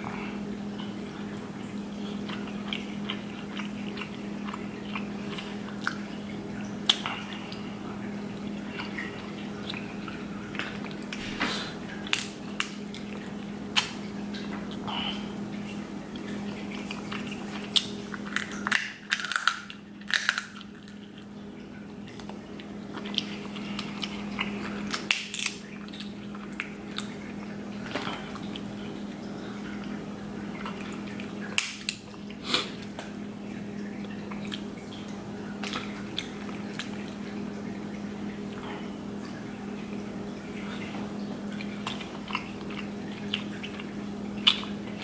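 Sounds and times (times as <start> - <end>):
steady low hum: 0.0 - 45.0
crab shells cracking: 12.0 - 12.8, 17.0 - 21.2, 23.0 - 27.1, 31.4 - 32.1.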